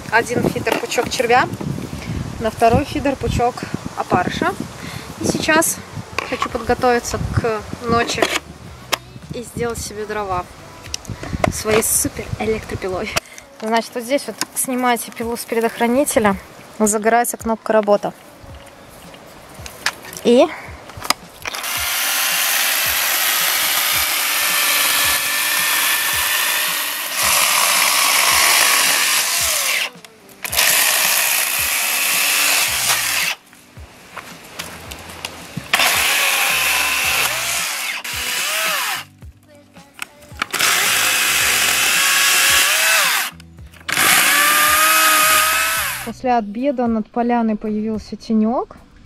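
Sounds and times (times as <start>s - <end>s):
electric chainsaw cutting branches: 21.4s - 33.5s, 34.4s - 39.2s, 40.4s - 46.1s.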